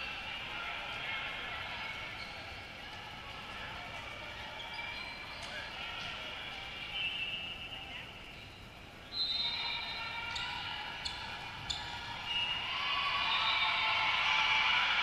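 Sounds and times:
crowd voices: 0.0s - 15.0s
shoe squeaks: 2.2s - 2.6s, 4.4s - 5.7s.

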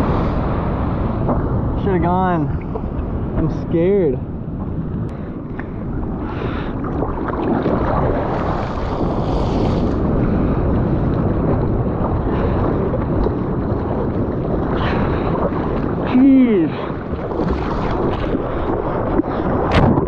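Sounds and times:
wind on microphone: 0.0s - 20.0s
seawater sloshing and splashing: 5.6s - 20.0s.

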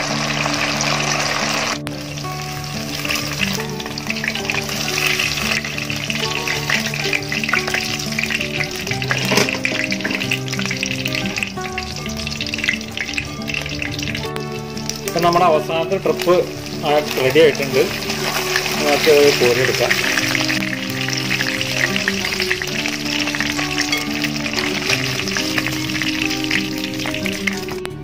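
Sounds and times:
chicken sizzling in hot oil: 0.0s - 28.0s
soft background music: 0.0s - 28.0s.

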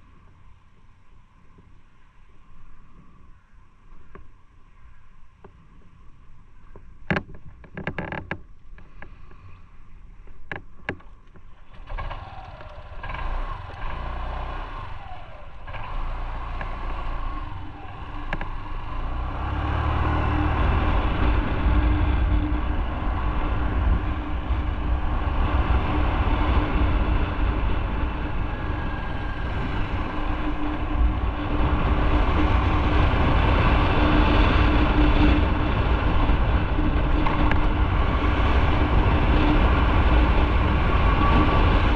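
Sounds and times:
wind noise: 0.0s - 41.9s
clicks and knocks of scooter: 6.7s - 9.4s, 10.2s - 14.0s, 18.2s - 18.6s
scooter engine running: 10.9s - 41.9s.

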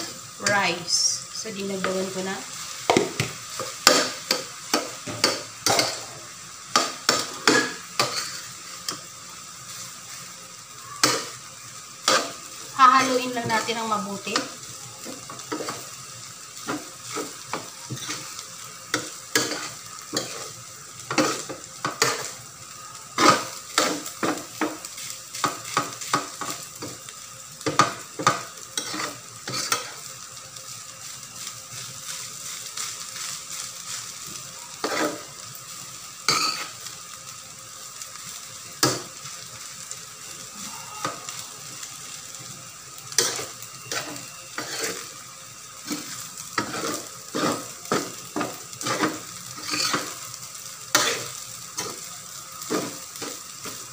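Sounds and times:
rice sizzling: 0.0s - 53.9s
metal utensil scraping a wok: 7.1s - 9.0s, 19.0s - 22.4s, 28.8s - 30.0s, 34.8s - 35.3s, 43.2s - 45.1s, 45.8s - 48.1s, 48.8s - 50.2s, 50.9s - 52.0s.

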